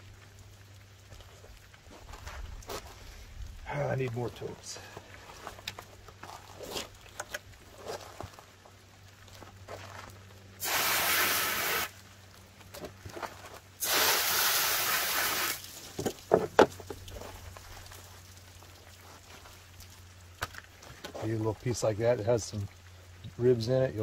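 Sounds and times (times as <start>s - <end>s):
hose nozzle spraying water: 10.6s - 12.0s, 13.8s - 17.2s.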